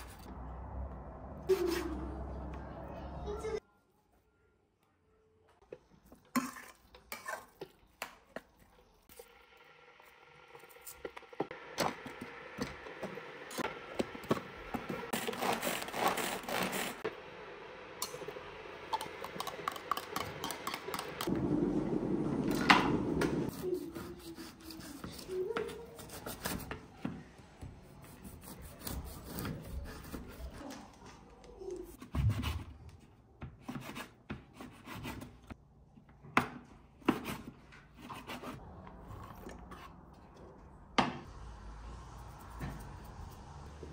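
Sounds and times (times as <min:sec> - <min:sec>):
cleaver sawing dried meat: 0:15.1 - 0:17.1.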